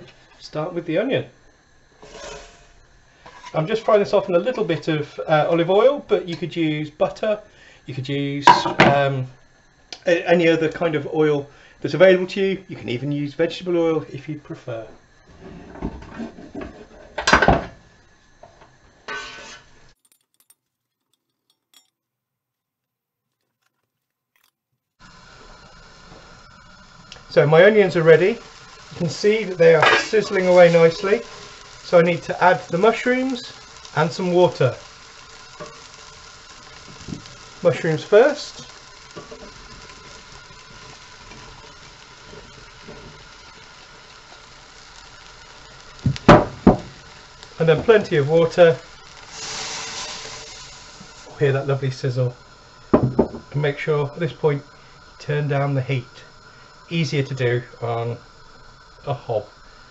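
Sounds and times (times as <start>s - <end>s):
onions sizzling in oil: 0.0s - 20.0s, 25.0s - 59.9s
wooden spatula scraping pot: 2.0s - 2.6s, 19.1s - 19.7s
pan clatter: 8.5s - 9.0s, 29.7s - 31.6s.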